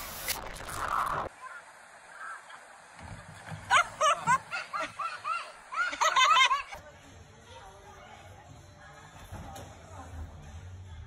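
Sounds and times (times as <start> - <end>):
person laughing: 3.7 - 6.8.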